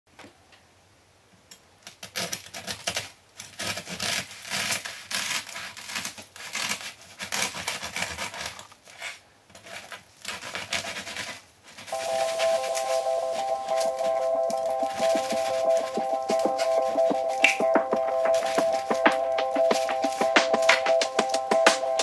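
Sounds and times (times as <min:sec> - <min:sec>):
bread knife sawing through crust: 0:03.6 - 0:11.4.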